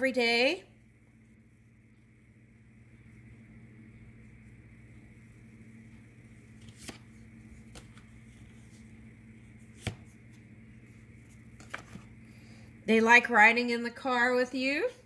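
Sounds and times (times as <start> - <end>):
faint low hum: 0.0 - 15.0
cards clicking and tapping: 6.6 - 8.2, 9.7 - 10.2, 11.5 - 12.1.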